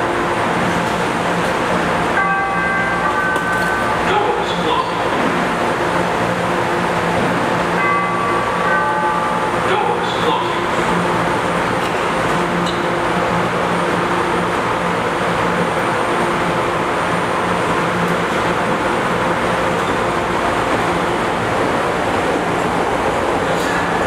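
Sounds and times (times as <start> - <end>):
subway train humming: 0.0 - 24.0
train moving off: 0.0 - 24.0.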